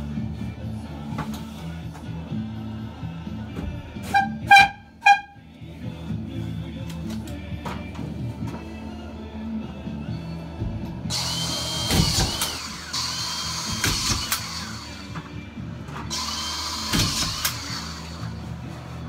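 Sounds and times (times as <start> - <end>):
faint radio music: 0.0 - 19.0
power screwdriver motor whine: 11.1 - 15.2, 16.1 - 18.4.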